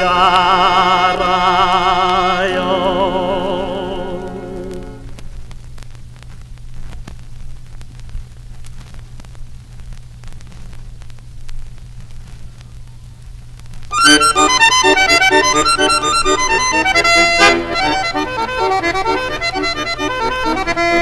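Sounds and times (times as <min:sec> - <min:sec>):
accordion tune: 0:00.0 - 0:05.2, 0:13.9 - 0:21.0
low hum: 0:00.0 - 0:05.8
vinyl crackle and clicks: 0:00.0 - 0:21.0.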